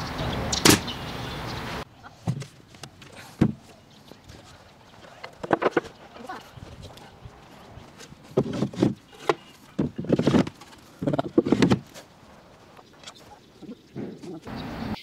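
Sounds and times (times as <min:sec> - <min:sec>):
wooden drawers sliding and knocking: 0:07.8 - 0:12.0.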